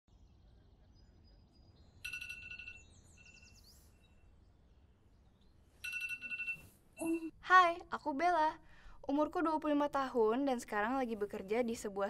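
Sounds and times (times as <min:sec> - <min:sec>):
birds chirping faintly: 0:00.1 - 0:06.1
phone electronic ringtone: 0:02.0 - 0:03.6, 0:05.8 - 0:07.3.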